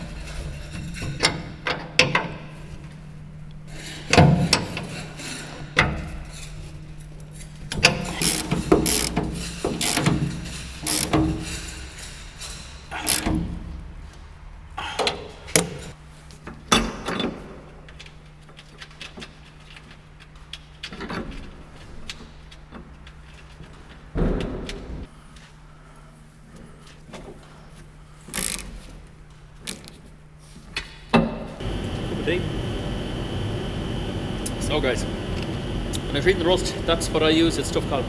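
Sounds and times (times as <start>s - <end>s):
metal scrapes and knocks: 3.7s - 13.2s
ratchet wrench clicking: 7.9s - 11.6s, 28.4s - 28.7s.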